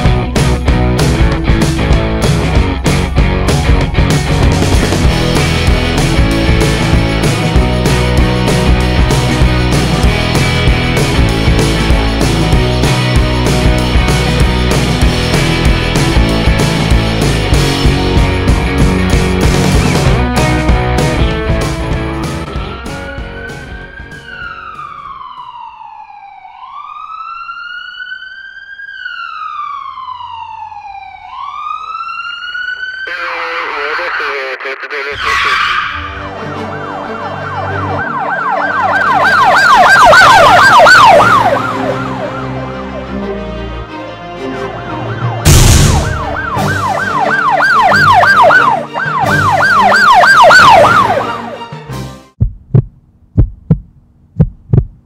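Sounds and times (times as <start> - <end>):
rock music with guitar: 0.0 - 24.4, 38.1 - 43.3, 45.1 - 51.8
ambulance siren wailing: 22.5 - 51.8
low thump: 45.4 - 46.5, 52.4 - 55.0
loud crash: 45.4 - 46.8.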